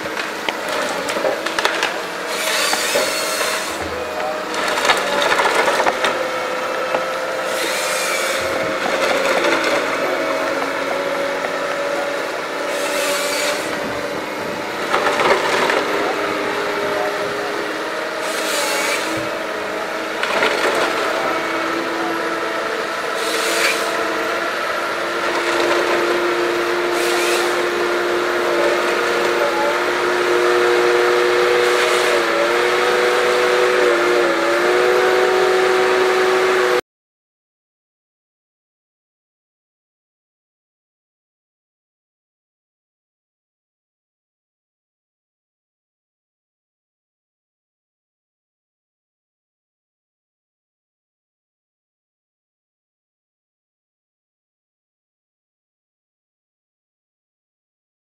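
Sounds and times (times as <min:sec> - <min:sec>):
chainsaw cutting rasps: 0:00.0 - 0:36.8
harvester engine droning: 0:00.0 - 0:36.8.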